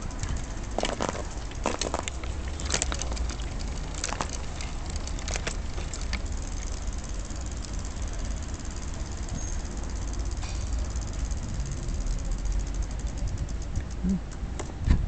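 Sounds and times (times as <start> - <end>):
wheelchair clicks and rattles: 0.0 - 6.8
wheelchair rolling on pavement: 0.0 - 13.8.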